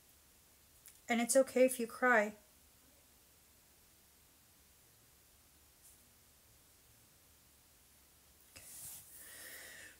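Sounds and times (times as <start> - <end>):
faint room hiss: 0.0 - 9.9
soft high hiss: 0.0 - 9.9.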